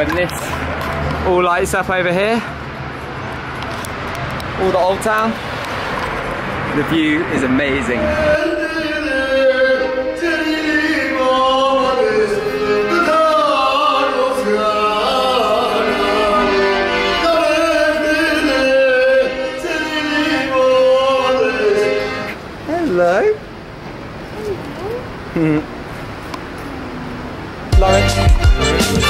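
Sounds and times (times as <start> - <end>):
accordion melody: 8.1 - 22.9, 27.7 - 29.0.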